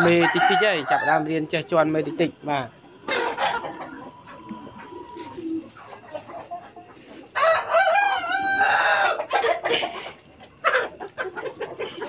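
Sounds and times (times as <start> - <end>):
rooster crowing: 0.0 - 1.4, 7.4 - 9.3
chickens clucking: 0.0 - 12.0.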